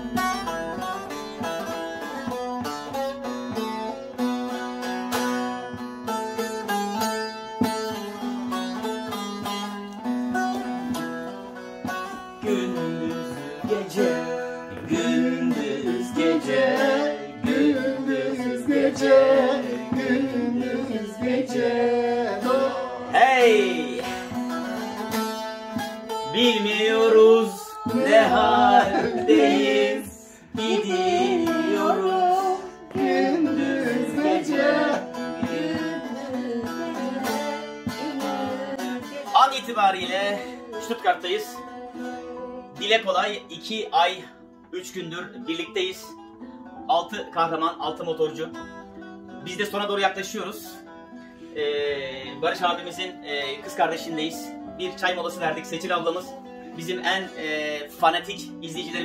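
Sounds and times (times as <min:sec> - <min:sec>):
plucked lute folk melody: 0:00.0 - 0:59.0
person singing: 0:12.4 - 0:25.4, 0:26.1 - 0:43.5.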